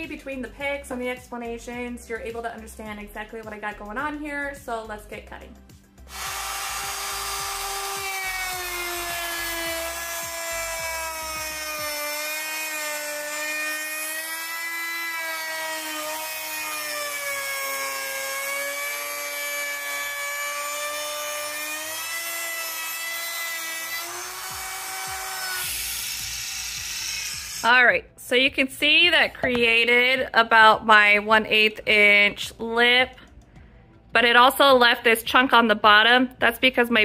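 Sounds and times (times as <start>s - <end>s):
router motor whine: 6.1s - 27.7s.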